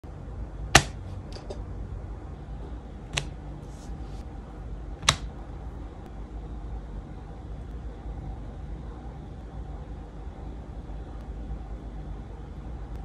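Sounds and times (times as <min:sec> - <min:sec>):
low steady hum: 0:00.0 - 0:13.0
soft rustle: 0:03.6 - 0:04.3.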